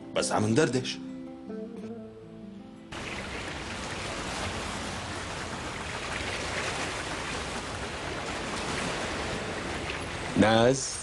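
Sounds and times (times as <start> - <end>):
sea water washing: 2.9 - 11.0.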